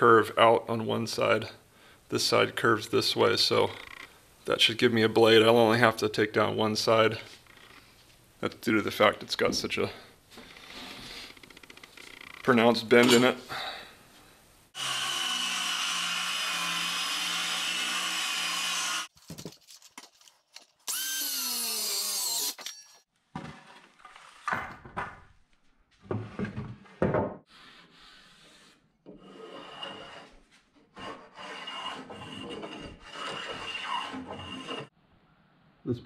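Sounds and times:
wood and tools clattering: 22.5 - 25.4.

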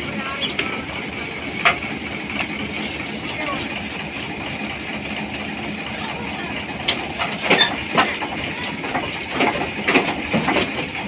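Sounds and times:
tractor engine running: 0.0 - 11.0
metal parts knocking and clanking: 6.9 - 11.0.

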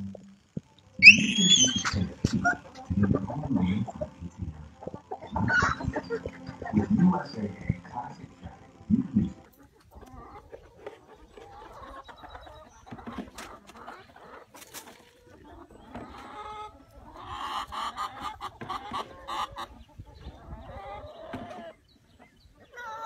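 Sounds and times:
hens clucking: 0.0 - 23.0
hen squawking: 1.0 - 9.5.

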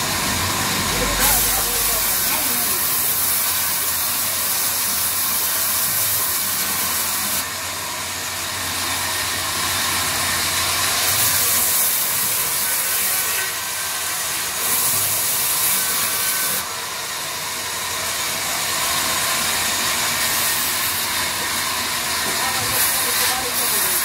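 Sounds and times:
band saw ripping wood: 22.2 - 24.0.

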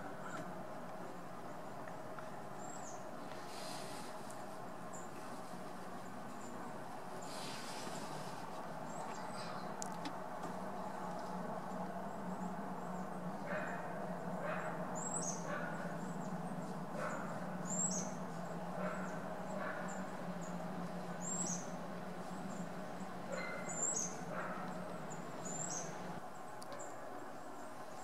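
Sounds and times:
low steady hum: 0.0 - 28.0
bird chirping: 12.1 - 26.2.

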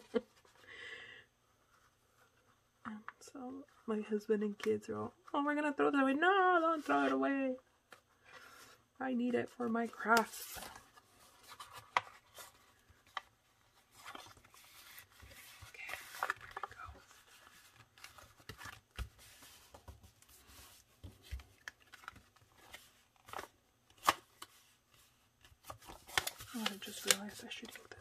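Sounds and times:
paper rustling and scraping: 8.1 - 28.0.

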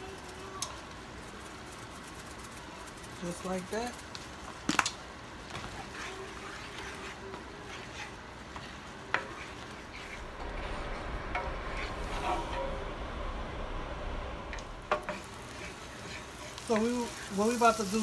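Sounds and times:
faint sizzle: 0.0 - 18.0
wooden spoon stirring sauce: 5.4 - 10.2.

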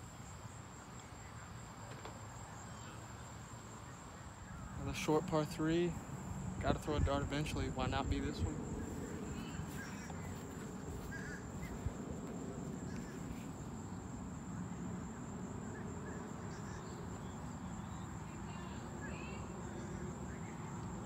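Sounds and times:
short bird calls: 8.8 - 12.0.

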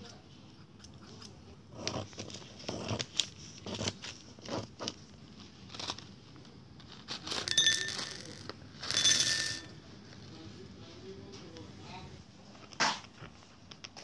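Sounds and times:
paper packet crinkling: 2.2 - 7.5
beads clattering into glass bowl: 7.3 - 9.8
glass bowl ringing: 7.5 - 9.8.

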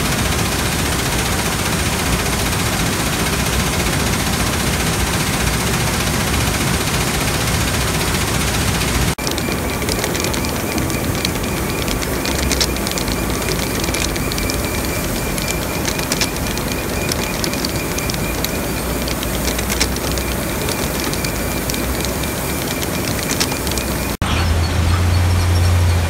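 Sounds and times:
high machine whine: 8.9 - 24.2
crushed stone pouring: 9.2 - 24.1.

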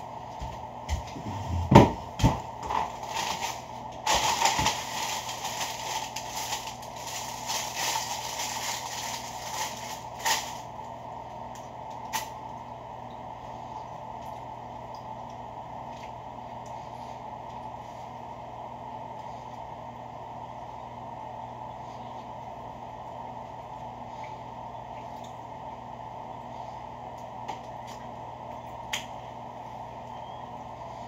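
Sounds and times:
paper rustling and crinkling: 2.6 - 10.7.

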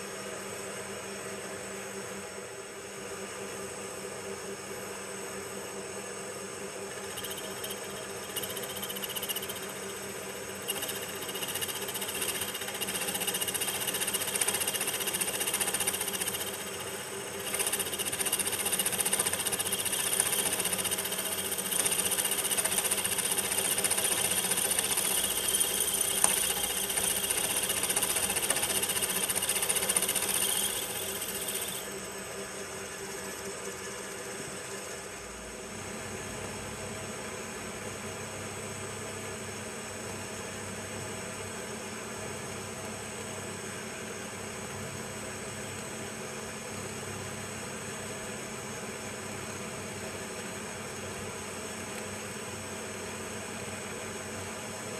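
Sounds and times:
milling machine hum: 2.3 - 37.5
drill cutting metal: 6.9 - 31.9.

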